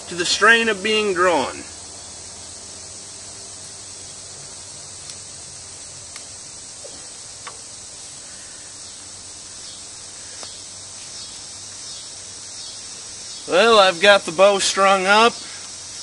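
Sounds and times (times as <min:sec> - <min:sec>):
insects chirping chorus: 0:00.0 - 0:16.0
faint clicks of bow: 0:06.1 - 0:07.7, 0:10.3 - 0:11.2.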